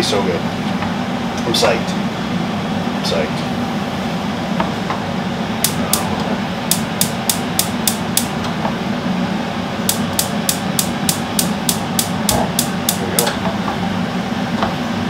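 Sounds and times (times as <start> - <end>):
gas spark igniter clicking: 5.6 - 6.0, 6.7 - 8.3, 9.9 - 13.3.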